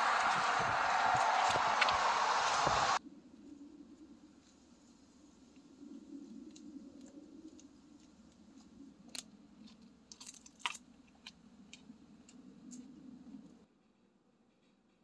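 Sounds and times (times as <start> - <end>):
low steady rumble: 0.0 - 3.0.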